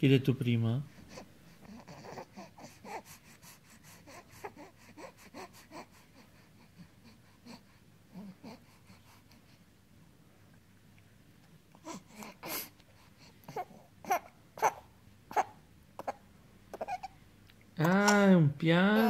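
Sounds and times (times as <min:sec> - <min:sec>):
infant vocal sounds: 0:01.1 - 0:03.3
infant mouth clicks and smacks: 0:17.4 - 0:18.2.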